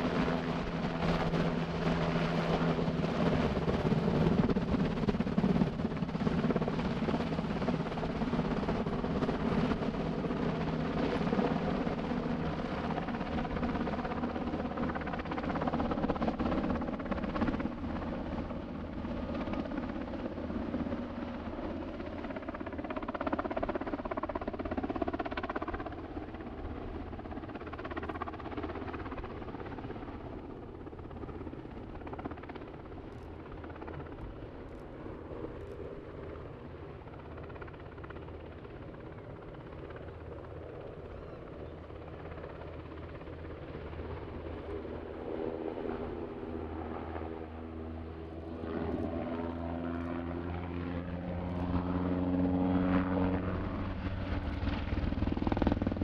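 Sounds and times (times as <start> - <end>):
helicopter flying overhead: 0.0 - 56.0.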